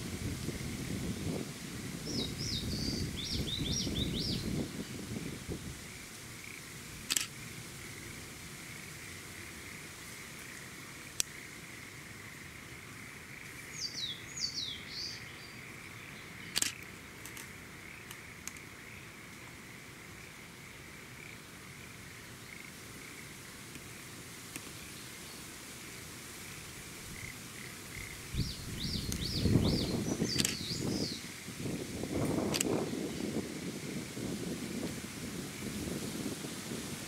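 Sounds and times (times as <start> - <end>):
frogs chorus: 5.2 - 24.2
sharp click: 7.1 - 7.3, 16.5 - 17.5, 30.3 - 30.7, 32.5 - 32.7.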